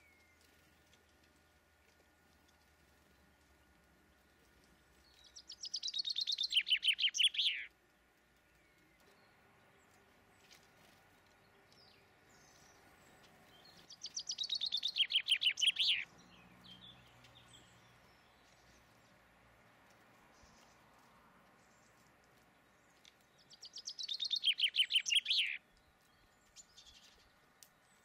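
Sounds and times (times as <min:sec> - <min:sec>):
songbird singing: 0:00.0 - 0:28.0
faint short bird chirps: 0:05.4 - 0:07.7, 0:14.0 - 0:16.1, 0:23.6 - 0:25.6.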